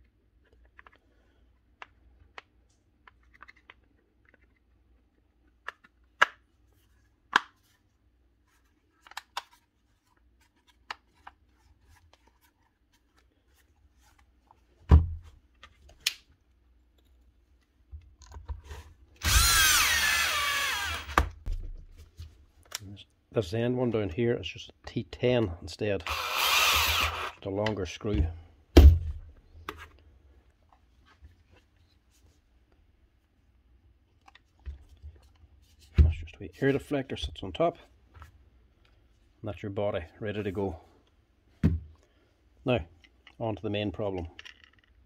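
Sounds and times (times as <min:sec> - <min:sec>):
plastic housing clicks and taps: 0:05.6 - 0:06.4
cordless drill whirring: 0:19.2 - 0:21.4, 0:26.1 - 0:27.4.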